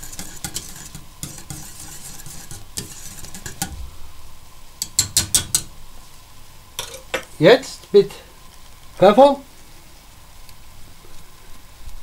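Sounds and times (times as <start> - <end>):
whisk scraping metal pot: 0.0 - 3.8.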